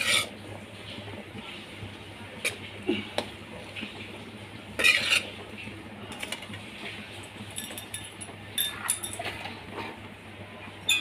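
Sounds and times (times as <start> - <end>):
ladle scraping metal pan: 0.0 - 0.3, 4.8 - 5.4
utensils clinking: 7.5 - 9.6.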